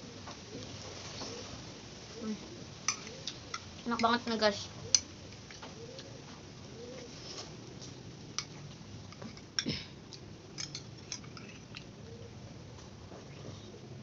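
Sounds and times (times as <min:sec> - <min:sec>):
soft chewing: 0:00.2 - 0:03.9, 0:04.8 - 0:14.0.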